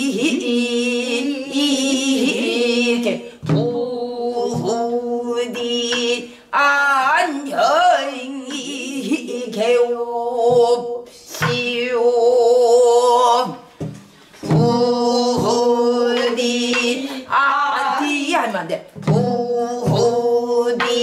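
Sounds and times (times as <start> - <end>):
barrel drum strokes: 13.8 - 17.0, 19.0 - 21.0.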